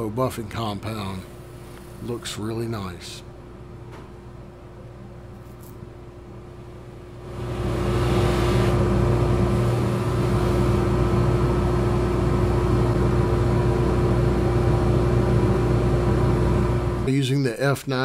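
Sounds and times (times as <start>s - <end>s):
buffing wheel running: 7.3s - 13.0s.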